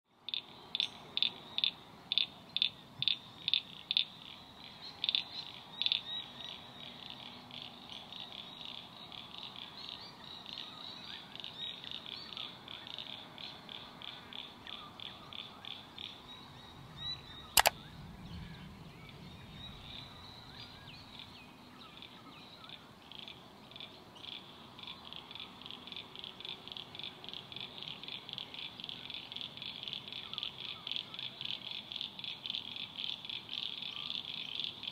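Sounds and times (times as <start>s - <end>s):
single sharp click: 17.6s - 17.8s.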